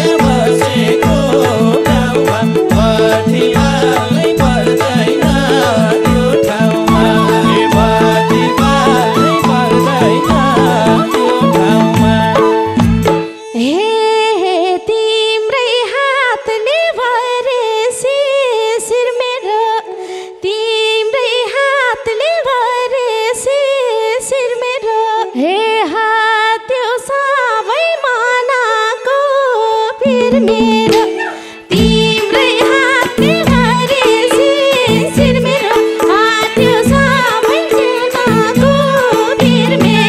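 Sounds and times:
hand drums playing: 0:00.0 - 0:13.4, 0:30.0 - 0:40.0
folk instrumental melody: 0:00.0 - 0:13.6, 0:30.0 - 0:40.0
harmonium drone: 0:00.0 - 0:16.0, 0:28.8 - 0:40.0.

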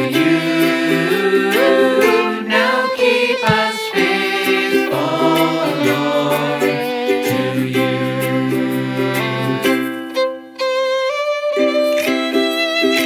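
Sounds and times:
voices singing worship song: 0:00.0 - 0:09.6.

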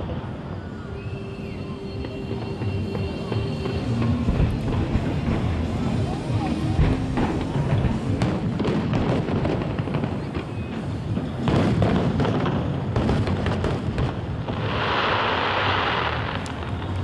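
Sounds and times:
hissing crackle of fireworks: 0:00.0 - 0:17.0
music: 0:00.7 - 0:09.4.

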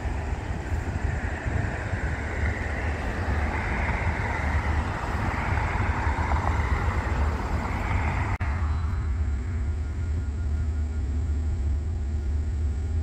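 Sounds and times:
cars passing: 0:00.0 - 0:10.0
low rumble: 0:00.0 - 0:13.0.

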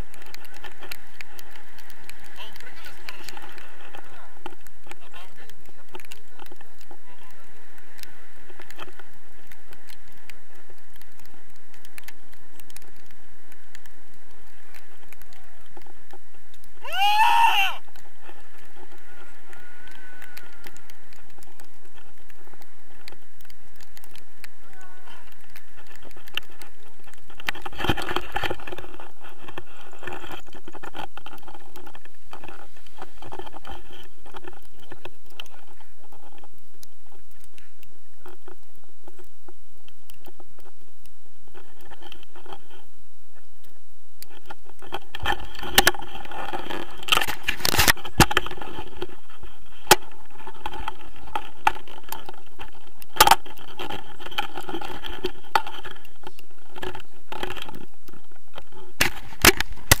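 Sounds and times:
camera rustling against clothing: 0:00.0 - 0:16.9, 0:17.7 - 1:00.0.

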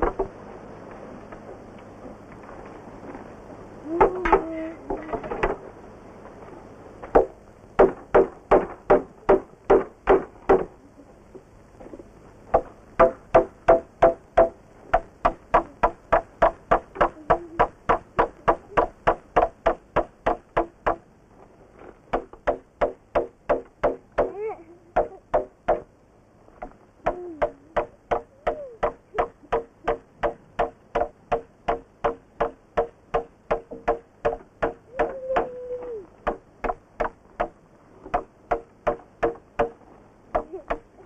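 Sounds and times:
knocking on wooden planks: 0:00.0 - 0:00.4, 0:07.1 - 0:10.7, 0:26.6 - 0:35.5, 0:36.2 - 0:40.9.

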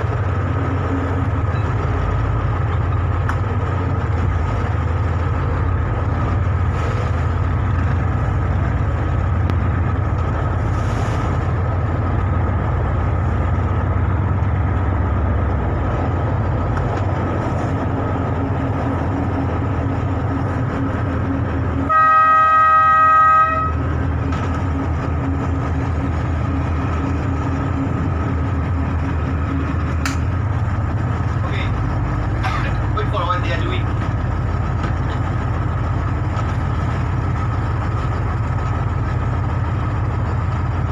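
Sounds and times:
boat engine droning: 0:00.0 - 0:40.9
boat horn blast: 0:21.8 - 0:23.8.

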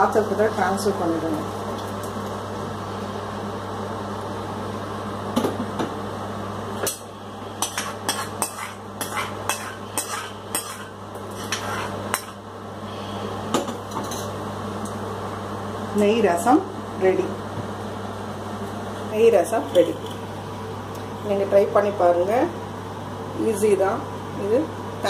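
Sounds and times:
ladle scraping metal pan: 0:07.6 - 0:12.4.

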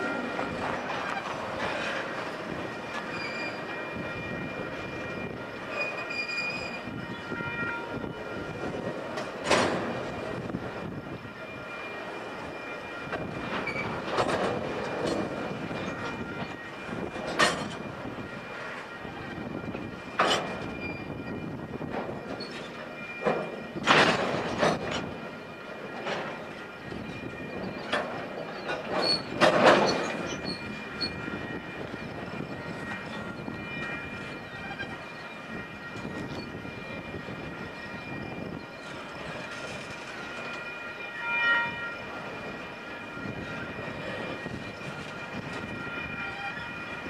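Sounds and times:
train wheels rumbling on rail: 0:00.0 - 0:47.0.

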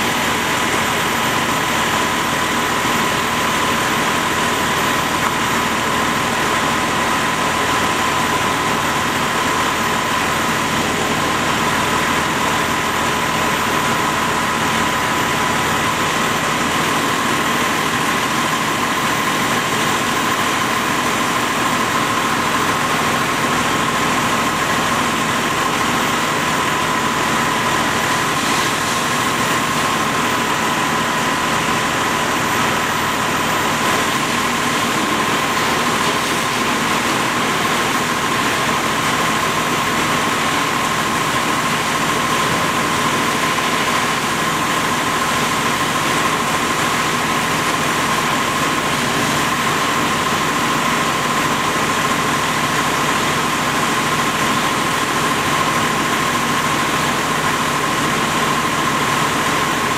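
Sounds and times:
fire engine pump engine droning: 0:00.0 - 0:59.9
hiss of water from hose: 0:22.8 - 0:59.9.

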